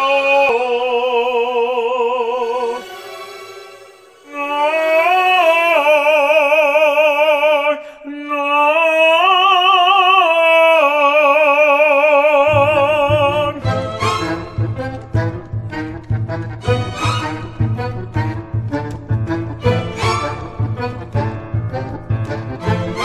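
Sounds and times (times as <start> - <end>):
operatic voice singing: 0.0 - 21.2
low pulsing instrumental: 12.5 - 23.0.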